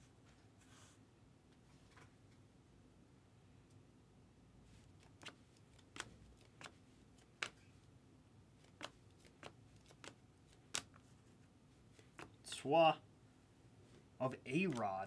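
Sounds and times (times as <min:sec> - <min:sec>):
cards clicking as flipped: 0:05.0 - 0:07.7, 0:08.6 - 0:11.1, 0:12.0 - 0:12.4, 0:14.6 - 0:14.9.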